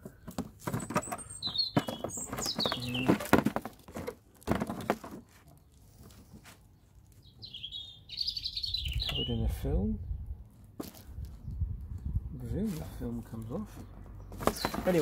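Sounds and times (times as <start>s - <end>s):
bird chirping: 0.0s - 3.5s, 5.4s - 10.3s, 13.4s - 15.0s
bubble wrap and cardboard rustling: 2.0s - 7.2s.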